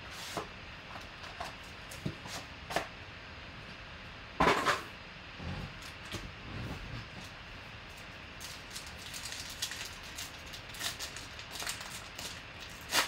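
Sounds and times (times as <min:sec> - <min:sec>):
foil pack rustling: 0:07.0 - 0:13.0.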